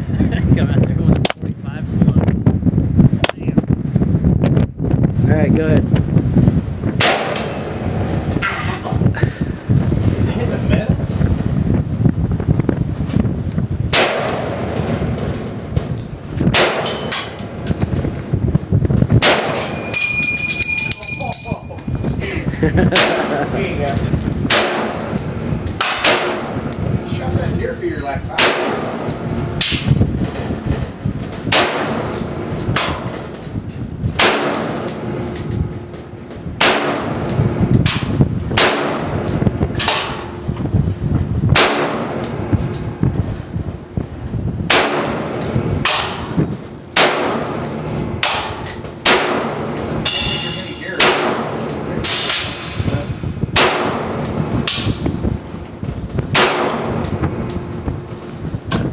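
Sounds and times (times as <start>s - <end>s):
rifle shots: 7.0s - 7.9s, 13.9s - 14.9s, 16.5s - 17.3s, 19.2s - 19.8s, 24.5s - 25.2s, 25.8s - 26.6s, 28.4s - 29.9s, 31.5s - 33.0s, 34.2s - 35.1s, 36.6s - 40.3s, 41.5s - 42.3s, 44.7s - 46.3s, 46.9s - 52.8s, 53.5s - 54.9s, 56.3s - 57.1s
bullets ringing on steel targets: 19.5s - 21.8s, 49.8s - 52.8s.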